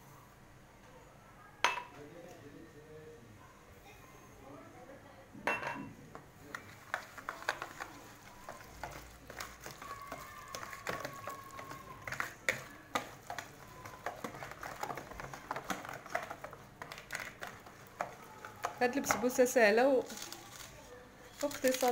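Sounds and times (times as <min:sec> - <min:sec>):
utensil scraping bowl while stirring: 0:06.4 - 0:20.2.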